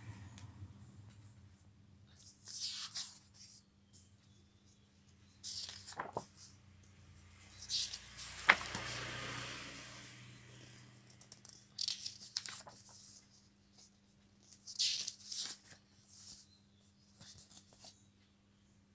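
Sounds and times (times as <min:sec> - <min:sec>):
book pages turning: 0:02.1 - 0:03.6, 0:05.4 - 0:06.6, 0:07.3 - 0:09.7, 0:11.0 - 0:16.4.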